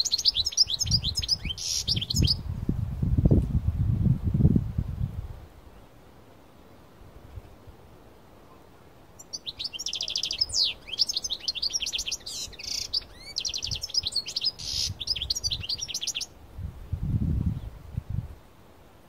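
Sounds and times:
goldfinch singing trills: 0:00.0 - 0:02.4, 0:09.2 - 0:16.3.

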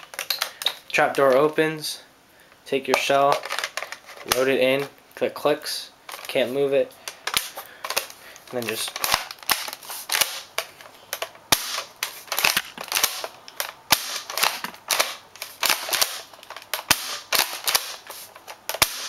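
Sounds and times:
spring airsoft shotgun pumped and fired: 0:18.8 - 0:19.0.

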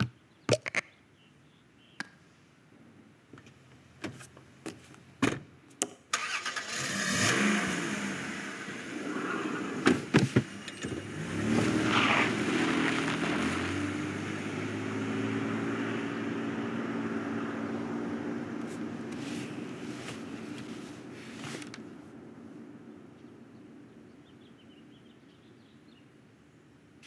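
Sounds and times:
car engine running: 0:06.8 - 0:22.0
car doors shutting: 0:09.7 - 0:11.8.

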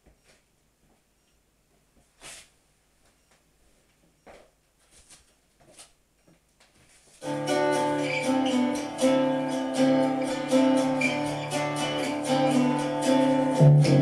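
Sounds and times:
backing track through speakers: 0:07.2 - 0:14.0.

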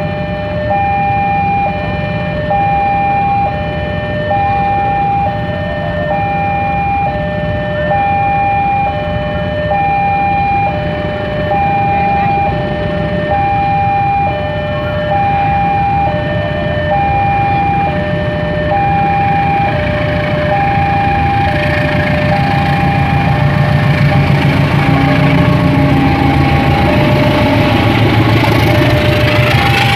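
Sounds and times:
approaching train rumble: 0:00.0 - 0:29.9
two-note crossing alarm: 0:00.0 - 0:29.9
motorcycle engines idling: 0:09.2 - 0:29.9.

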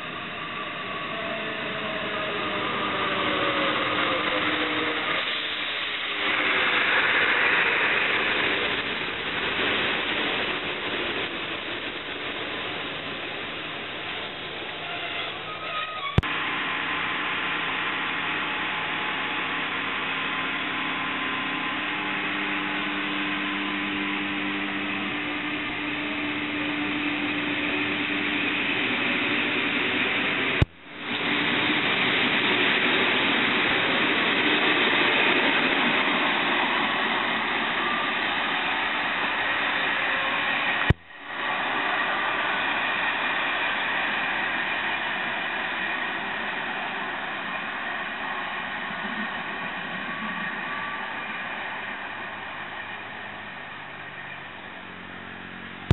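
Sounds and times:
train wheels rolling: 0:00.0 - 0:16.4
locomotive low hum: 0:00.0 - 0:55.9.

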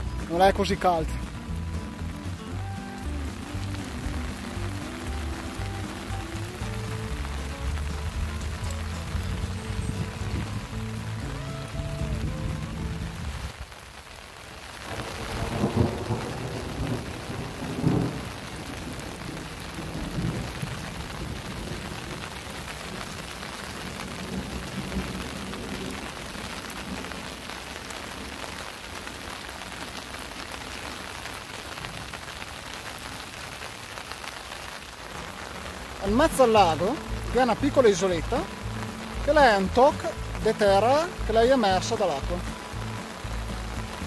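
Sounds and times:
low rumbles: 0:00.0 - 0:13.5
rain falling on a lake: 0:00.0 - 0:44.0.

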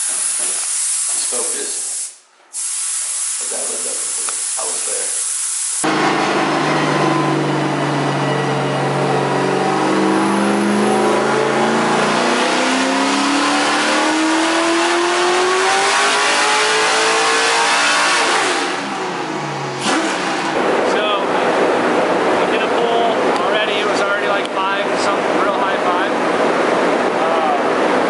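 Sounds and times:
car engine revving on dyno: 0:05.8 - 0:23.4, 0:24.8 - 0:28.0.

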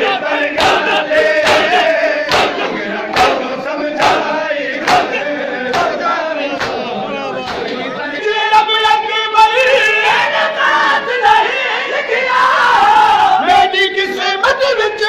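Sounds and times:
crowd of men chanting: 0:00.0 - 0:14.6
hands slapping chests: 0:00.6 - 0:06.9.

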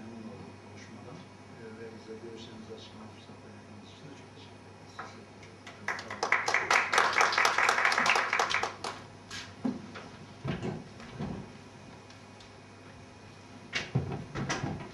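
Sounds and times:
applause: 0:05.8 - 0:09.1
chairs knocking and thumping: 0:09.6 - 0:11.5, 0:13.8 - 0:14.9.

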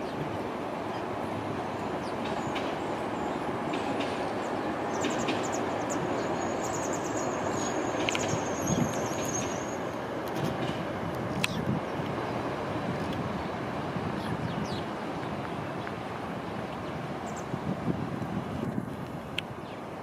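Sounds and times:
tram rolling rumble: 0:00.0 - 0:20.0
high steady squeal: 0:05.0 - 0:10.0
light clicks: 0:10.2 - 0:12.2.

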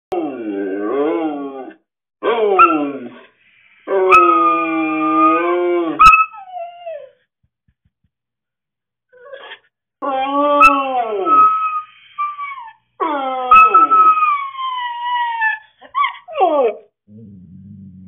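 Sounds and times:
husky howling: 0:03.9 - 0:06.7
dog yipping: 0:06.0 - 0:07.1, 0:13.5 - 0:16.8.

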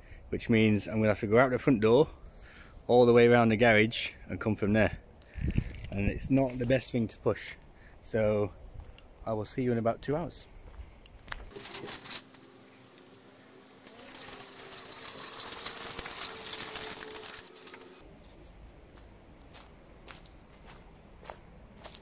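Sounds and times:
small wheels crunching over gravel: 0:11.3 - 0:13.1, 0:13.7 - 0:18.0.

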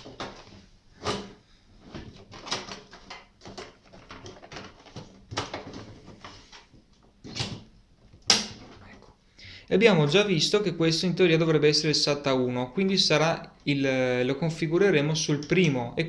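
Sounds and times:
computer parts clicking and knocking: 0:00.0 - 0:06.3, 0:06.9 - 0:09.0.

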